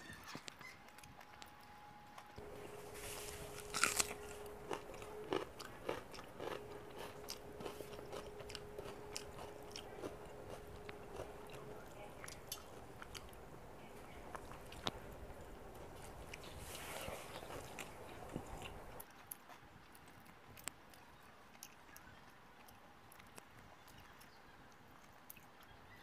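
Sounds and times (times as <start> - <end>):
chewing and mouth smacks: 0.1 - 13.5, 14.3 - 25.9
loud crunch: 2.4 - 13.5
fingers mixing rice on metal plate: 2.4 - 19.4.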